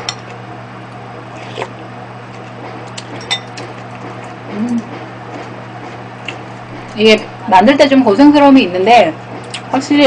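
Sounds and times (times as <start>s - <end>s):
low voice hum: 4.5s - 5.0s.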